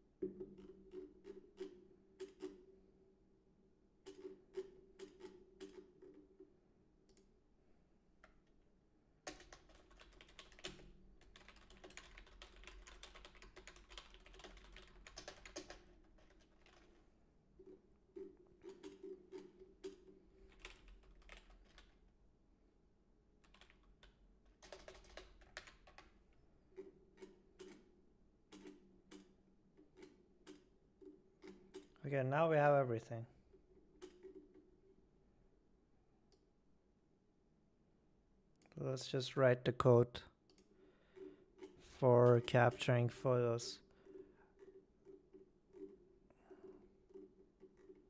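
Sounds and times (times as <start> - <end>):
typing on computer keyboard: 4.0 - 6.4, 9.2 - 17.0, 17.6 - 22.0, 23.4 - 26.2, 26.8 - 27.9, 28.5 - 32.0, 34.0 - 34.7, 44.0 - 48.0.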